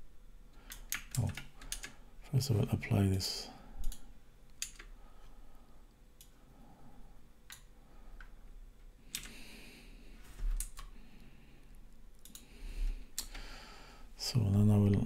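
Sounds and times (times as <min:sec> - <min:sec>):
keyboard and mouse clicks: 0:00.6 - 0:02.0, 0:03.8 - 0:05.0, 0:07.5 - 0:08.3, 0:09.1 - 0:09.4, 0:10.5 - 0:10.9, 0:12.2 - 0:12.5.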